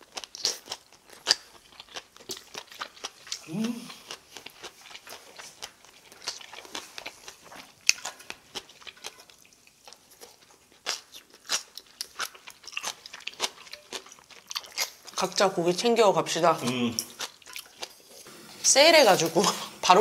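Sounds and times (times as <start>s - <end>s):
wet chewing mouth clicks: 0.0s - 15.3s.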